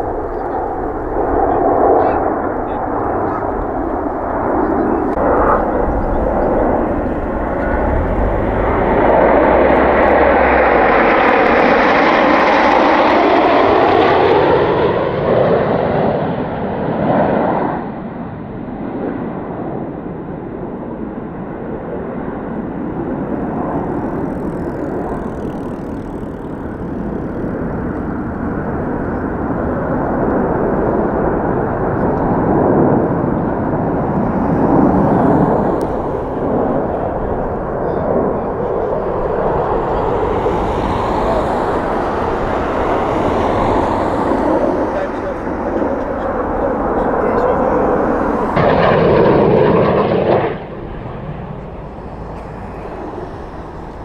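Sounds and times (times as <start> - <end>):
low steady rumble: 0.0 - 11.6
aircraft engine flying over: 0.0 - 54.0.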